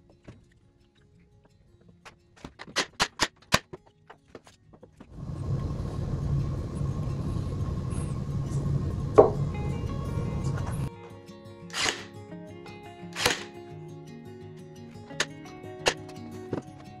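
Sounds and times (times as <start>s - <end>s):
steady hum and hiss: 5.1s - 10.9s
faint background music: 6.4s - 17.0s.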